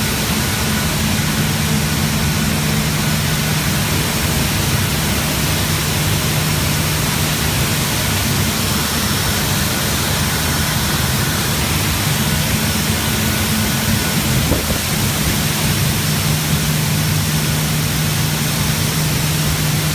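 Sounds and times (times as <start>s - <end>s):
constant low hum: 0.0s - 19.9s.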